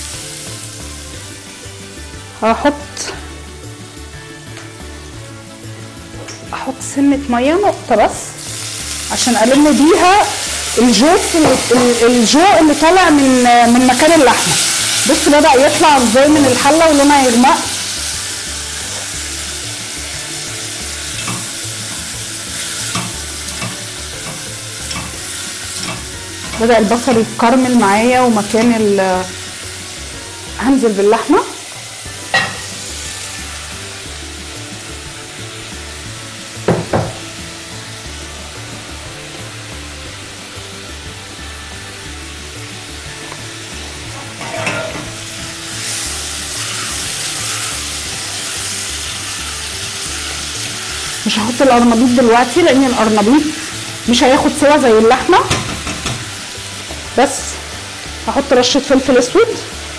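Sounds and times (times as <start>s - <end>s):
onions sizzling in a pot: 0.0s - 59.9s.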